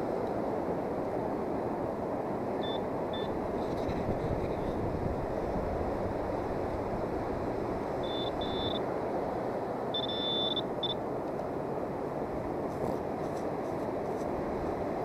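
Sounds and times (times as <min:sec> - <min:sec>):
metal detector beeps: 0:02.6 - 0:03.3, 0:08.0 - 0:08.8, 0:10.0 - 0:11.0.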